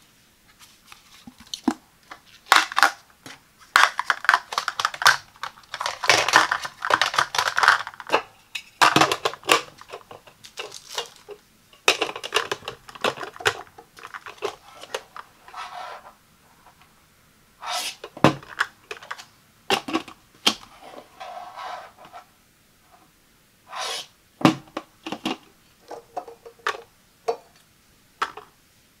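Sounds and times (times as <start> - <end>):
plastic parts sliding: 0.5 - 16.9, 17.6 - 22.3, 23.7 - 24.1
plastic lid and trays clicking: 3.8 - 15.3, 17.9 - 20.7, 28.2 - 28.5.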